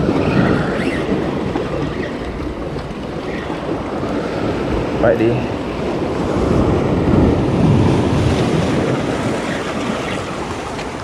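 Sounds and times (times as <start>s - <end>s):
waves breaking over rocks: 0.0s - 11.0s
wind buffeting microphone: 0.0s - 11.0s.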